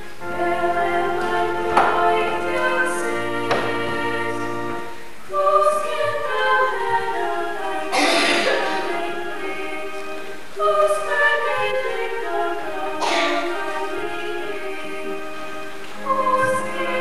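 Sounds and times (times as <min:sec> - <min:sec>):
low held notes: 0:00.0 - 0:17.0
women singing a duet: 0:00.1 - 0:17.0.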